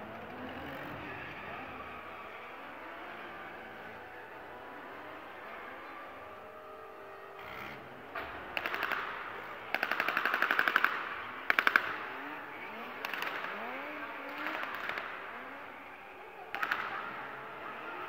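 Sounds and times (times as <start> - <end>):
car engines revving: 0.0 - 18.0
machine-gun fire bursts: 8.3 - 12.3, 13.0 - 15.2.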